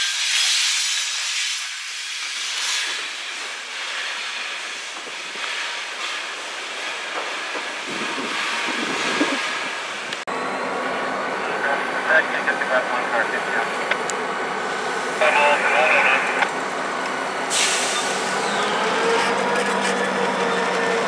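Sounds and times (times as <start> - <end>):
steel wheels hissing on rails: 0.0 - 10.2, 17.4 - 21.0.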